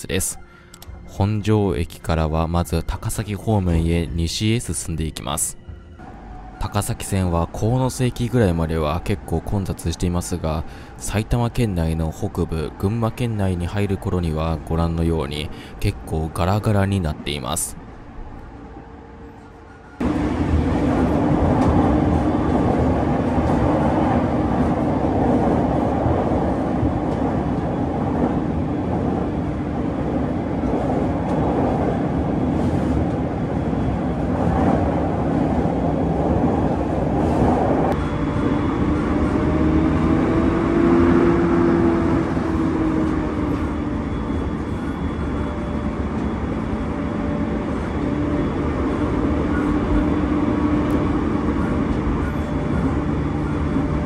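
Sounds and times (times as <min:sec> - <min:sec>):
train wheels rumbling on rail: 0:19.3 - 0:54.0.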